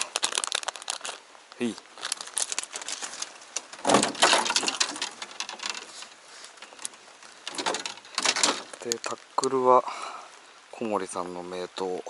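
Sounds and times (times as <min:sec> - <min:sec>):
fishing rods clattering on deck: 0:03.2 - 0:08.9.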